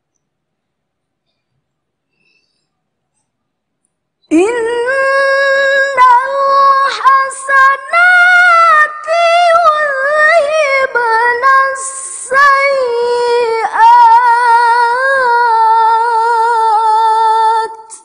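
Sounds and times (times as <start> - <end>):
woman reciting melodically: 4.3 - 18.0.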